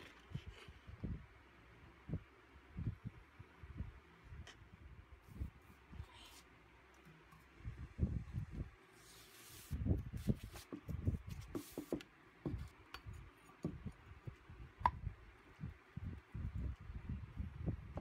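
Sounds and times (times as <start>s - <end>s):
cardboard tube thuds and taps: 10.3s - 12.7s, 13.6s - 13.9s.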